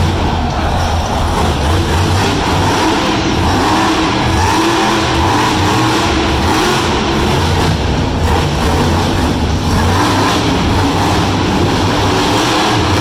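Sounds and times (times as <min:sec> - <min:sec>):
monster truck engine running loud: 0:00.0 - 0:13.0.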